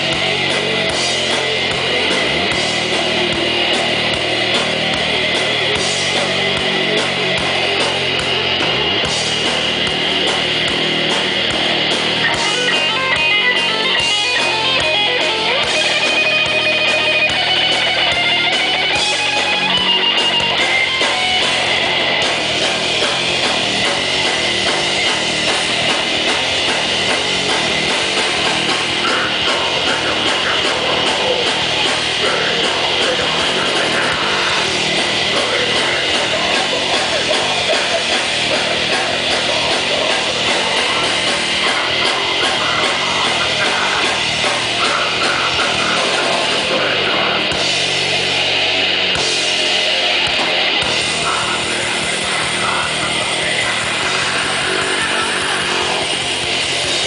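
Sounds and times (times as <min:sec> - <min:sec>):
bass guitar: 0:00.0 - 0:57.0
drum kit: 0:00.0 - 0:57.0
electric guitar: 0:00.0 - 0:57.0
person singing into a microphone: 0:32.2 - 0:47.5.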